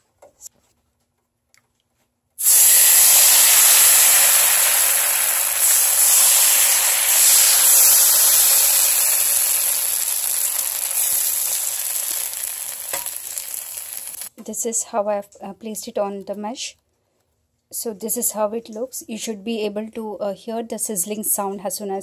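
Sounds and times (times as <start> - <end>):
batter sizzling on hot pan: 2.4 - 14.3.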